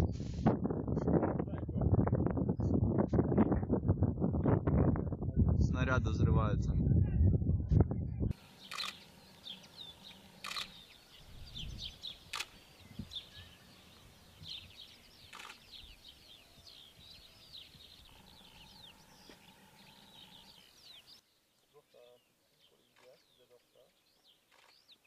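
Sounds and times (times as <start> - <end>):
birds chirping and singing: 8.4 - 25.0.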